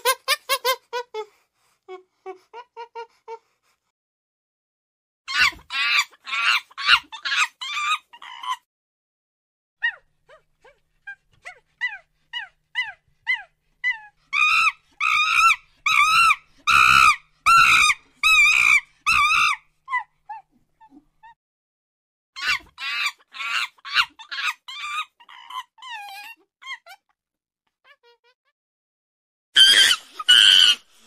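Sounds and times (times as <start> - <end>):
monkey shrill calls: 5.3 - 8.6, 14.3 - 19.6, 22.4 - 26.9, 29.6 - 30.8.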